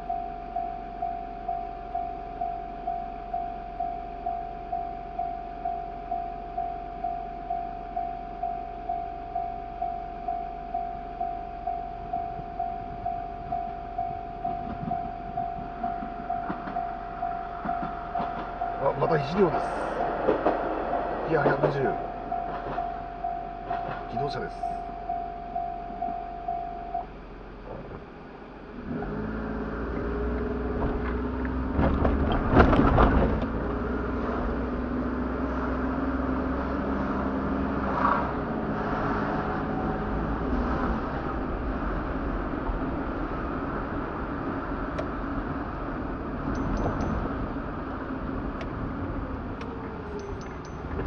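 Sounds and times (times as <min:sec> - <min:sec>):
level crossing warning bell: 0:00.0 - 0:20.0, 0:21.3 - 0:27.6, 0:39.3 - 0:41.2, 0:46.3 - 0:48.6, 0:49.5 - 0:51.0
train rumble: 0:00.0 - 0:51.0
car engine pulling away: 0:27.1 - 0:51.0.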